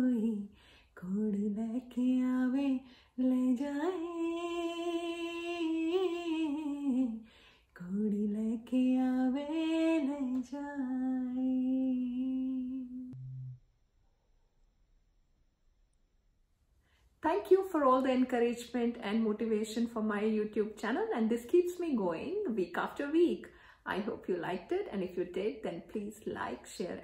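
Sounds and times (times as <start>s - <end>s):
woman singing unaccompanied: 0.0s - 7.2s, 7.8s - 13.2s.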